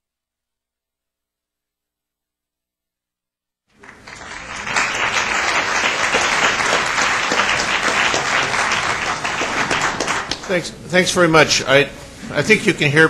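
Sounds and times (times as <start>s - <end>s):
audience applauding: 3.8s - 10.8s.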